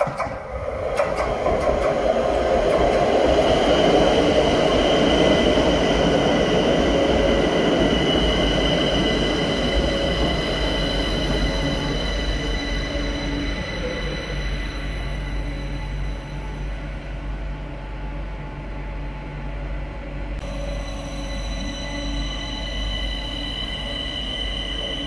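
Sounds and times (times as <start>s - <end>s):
metro train pulling into station: 0.0s - 25.0s
high-pitched squeal: 4.2s - 16.7s, 20.4s - 25.0s.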